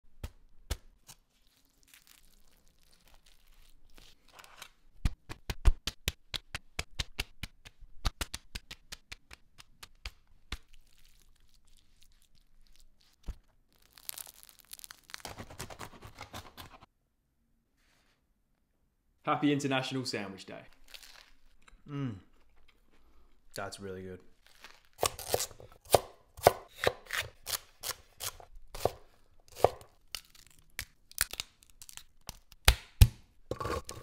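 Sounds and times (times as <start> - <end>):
bread crust crackling: 0.7 - 16.9, 20.7 - 21.7, 24.3 - 25.8, 29.2 - 32.9.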